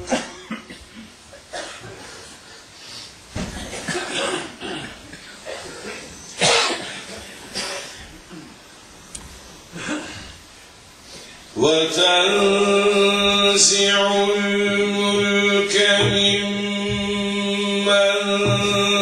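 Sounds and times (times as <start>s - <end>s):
audience coughing: 0.0s - 2.4s, 3.4s - 8.6s, 9.8s - 10.4s
low voices: 11.2s - 19.0s.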